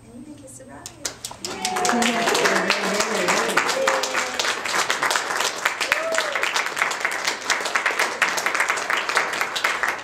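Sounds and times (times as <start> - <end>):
crowd applauding: 1.1 - 10.0.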